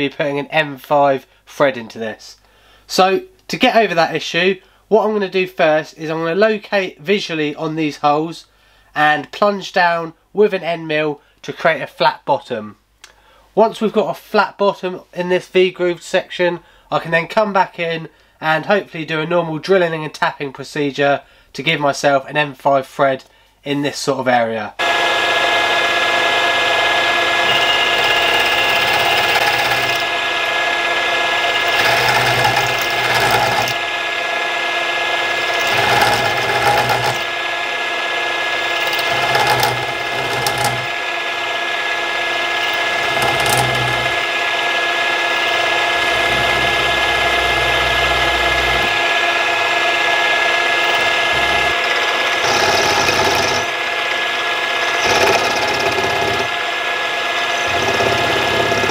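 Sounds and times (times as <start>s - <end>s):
end mill cutting metal: 24.8s - 58.9s
milling machine spindle whine: 24.8s - 58.9s.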